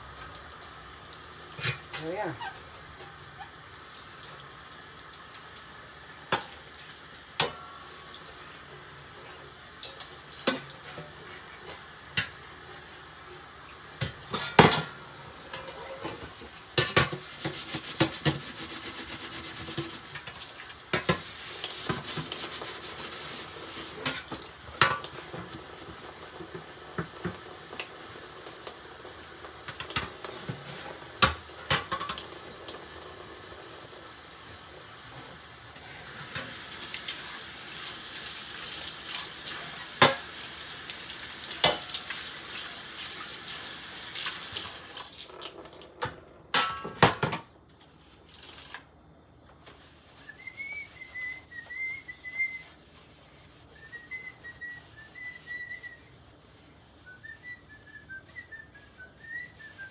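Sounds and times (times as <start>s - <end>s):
dishes and pots clinking: 1.6s - 3.2s, 7.4s - 7.8s, 14.0s - 18.5s, 23.9s - 25.6s, 31.2s - 32.3s, 40.0s - 40.3s, 41.6s - 42.0s, 46.0s - 47.5s
steady hiss: 15.0s - 44.9s.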